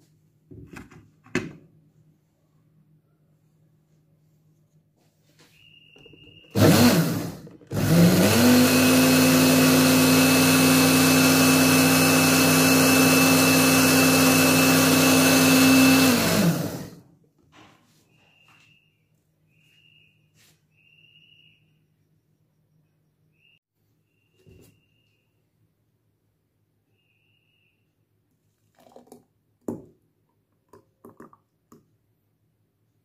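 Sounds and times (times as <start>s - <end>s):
electric blender running: 6.5s - 17.0s.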